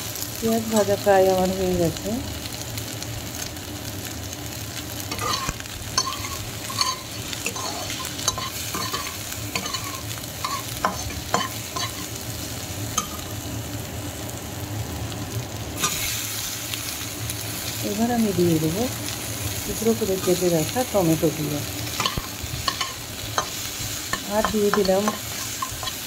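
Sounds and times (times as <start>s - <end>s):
onions sizzling in frying pan: 0.0s - 26.0s
metal spatula scraping pan: 5.1s - 12.1s.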